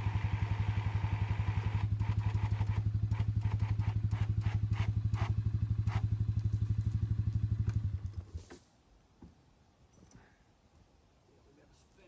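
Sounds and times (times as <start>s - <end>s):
small engine idling: 0.0s - 8.5s.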